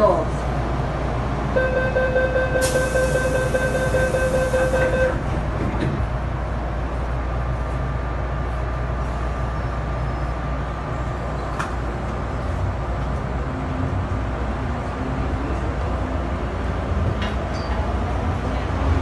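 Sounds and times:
subway car rumble: 0:00.0 - 0:19.0
train door warning tone: 0:01.6 - 0:05.3.

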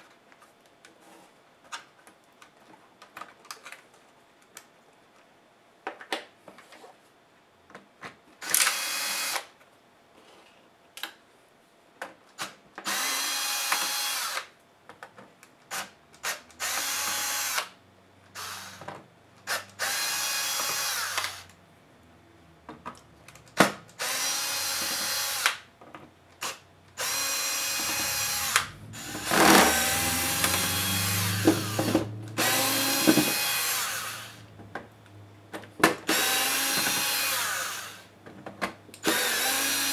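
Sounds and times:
electric screwdriver motor whining: 0:08.4 - 0:09.5, 0:12.8 - 0:14.5, 0:15.7 - 0:17.8, 0:18.4 - 0:18.9, 0:19.5 - 0:21.5, 0:24.0 - 0:25.6, 0:26.4 - 0:34.5, 0:36.1 - 0:38.1, 0:39.0 - 0:39.9.

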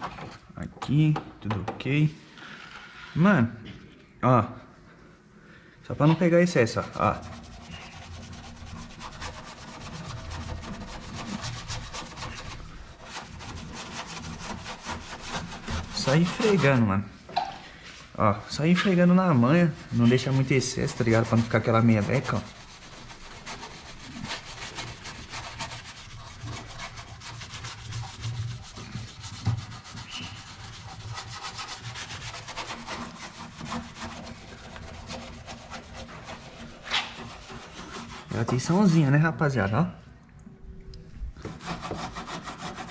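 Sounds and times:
brush scrubbing sheet metal: 0:06.0 - 0:17.2, 0:17.8 - 0:39.2, 0:41.4 - 0:42.9.

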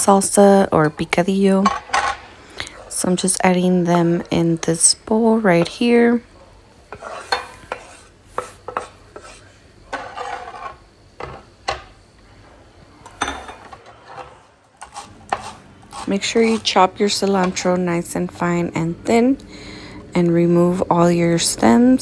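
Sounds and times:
knife scraping cutting board: 0:06.9 - 0:10.8, 0:13.8 - 0:16.8.

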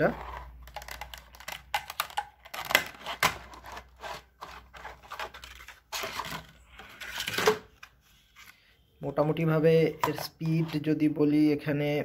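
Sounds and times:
plastic clicks taps and scraping: 0:00.6 - 0:03.8.

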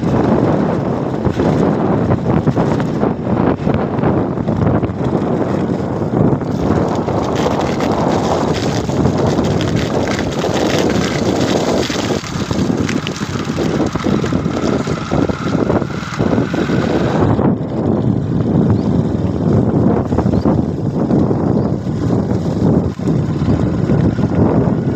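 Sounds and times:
rain and hail rushing: 0:00.0 - 0:17.4
wind buffeting microphone: 0:00.0 - 0:24.9
hailstones ticking: 0:04.8 - 0:17.0.

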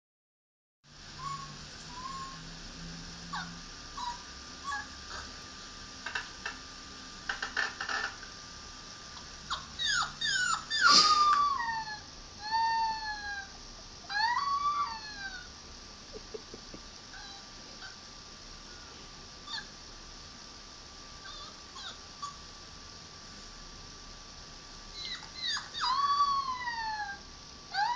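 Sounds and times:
dog whimpering: 0:01.2 - 0:02.5, 0:03.3 - 0:05.3, 0:09.2 - 0:15.5, 0:17.1 - 0:18.0, 0:19.4 - 0:19.7, 0:21.2 - 0:22.4, 0:24.9 - 0:27.9.

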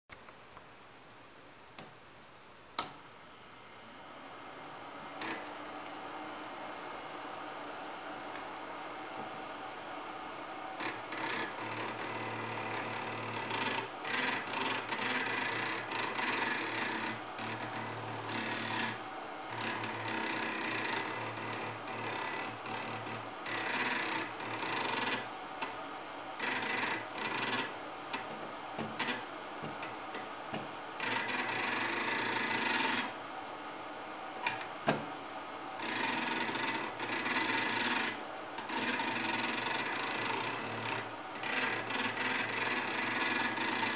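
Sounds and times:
stepper motor buzzing: 0:03.9 - 0:05.7, 0:10.6 - 0:25.8, 0:26.4 - 0:33.2, 0:35.8 - 0:43.9.

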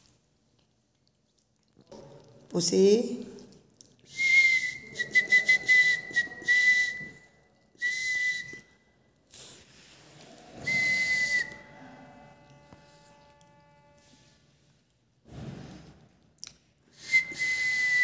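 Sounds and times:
high whistle with hiss: 0:10.6 - 0:11.7, 0:17.0 - 0:18.0.

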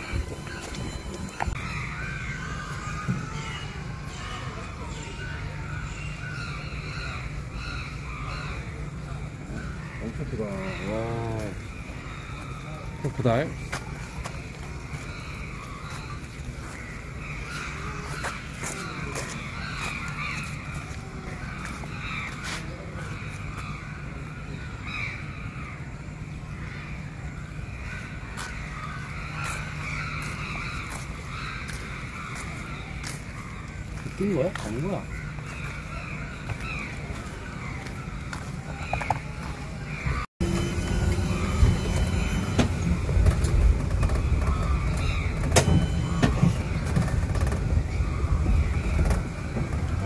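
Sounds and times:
birds harsh calls: 0:00.0 - 0:50.0
cart rumbling on road: 0:00.0 - 0:50.0
steady low rumble: 0:35.3 - 0:50.0
cart body rattling: 0:40.4 - 0:50.0.

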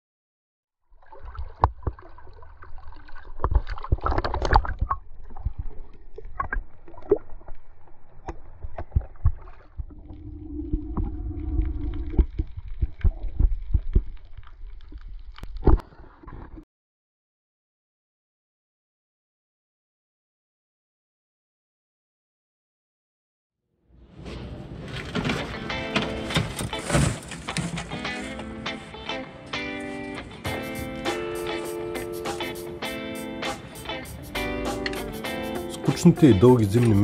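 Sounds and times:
water sloshing and lapping: 0:00.9 - 0:16.6, 0:24.2 - 0:28.4.

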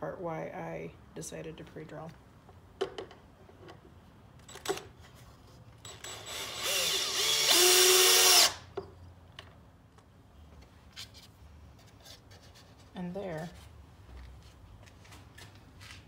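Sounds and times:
power drill whining: 0:05.8 - 0:08.6.

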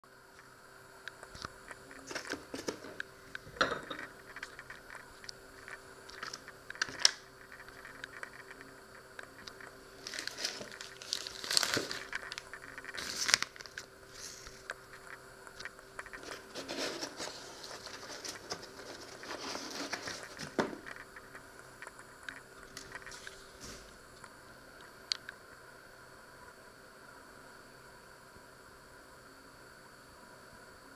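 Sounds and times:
faint steady hum: 0:00.0 - 0:30.9
plastic packaging crinkling: 0:01.9 - 0:03.0, 0:04.1 - 0:21.4, 0:22.3 - 0:23.8.

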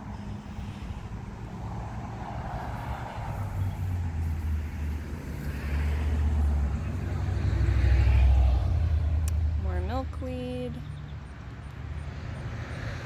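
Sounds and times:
vehicle engine rumble: 0:00.0 - 0:13.0.

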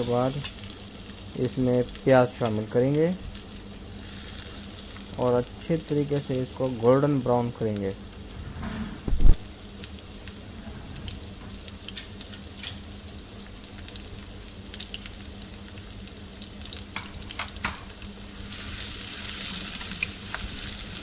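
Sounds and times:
onions sizzling in hot oil: 0:00.0 - 0:08.3, 0:09.2 - 0:21.0
short thump: 0:08.5 - 0:09.5.

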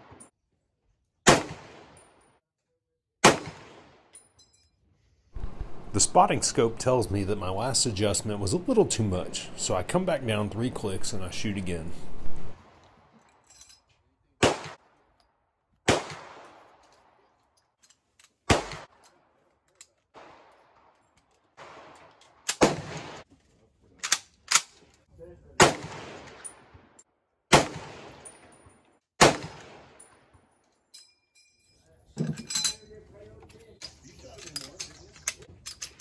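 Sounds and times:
rifle gunshots with echo: 0:01.3 - 0:02.0, 0:03.2 - 0:04.1, 0:14.4 - 0:14.8, 0:15.9 - 0:16.8, 0:18.5 - 0:19.0, 0:21.6 - 0:23.2, 0:25.6 - 0:26.7, 0:27.5 - 0:28.3, 0:29.2 - 0:30.0.

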